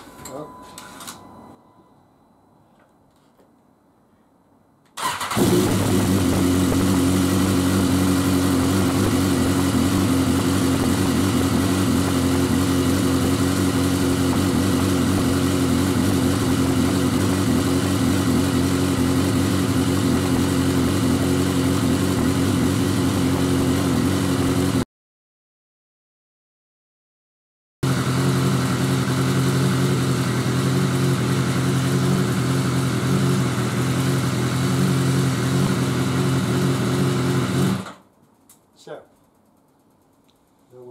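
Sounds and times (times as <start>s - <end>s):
motorcycle engine idling: 5.1s - 24.8s, 27.9s - 38.4s.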